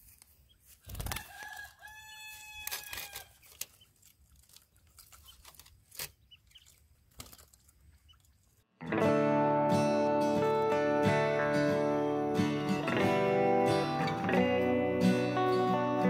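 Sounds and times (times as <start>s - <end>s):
fowl crowing: 1.1s - 3.4s.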